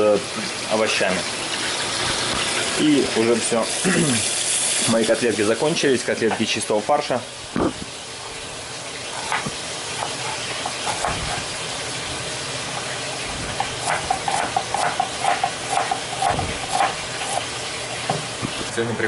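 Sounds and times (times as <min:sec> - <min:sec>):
knife chopping on cutting board: 0:09.2 - 0:11.5, 0:13.5 - 0:17.4.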